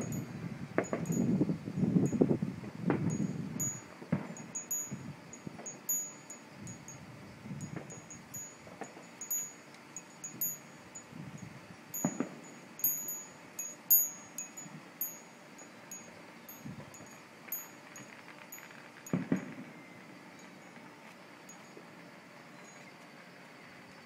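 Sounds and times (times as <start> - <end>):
high tinkling tones: 0.0 - 2.4, 3.0 - 20.8
distant fireworks thuds and pops: 0.8 - 1.1, 2.8 - 3.1, 4.1 - 4.5, 7.7 - 8.0, 12.0 - 12.4, 19.1 - 19.7.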